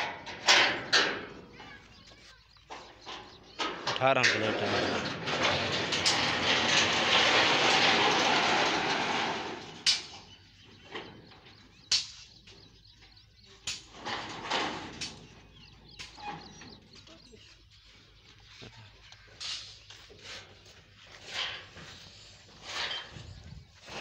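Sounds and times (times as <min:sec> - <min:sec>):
metal clanks: 0:00.0 - 0:01.8, 0:02.7 - 0:16.9, 0:21.2 - 0:24.0
metal frame scraping: 0:02.7 - 0:11.4, 0:13.9 - 0:16.9, 0:19.4 - 0:24.0.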